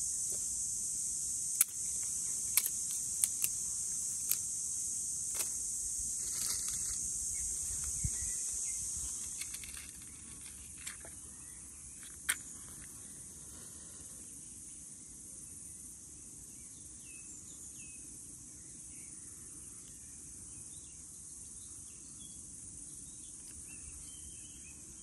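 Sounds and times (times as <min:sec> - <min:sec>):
insects buzzing: 0:00.0 - 0:25.0
dry twigs clicking together: 0:01.5 - 0:04.5, 0:05.3 - 0:07.1.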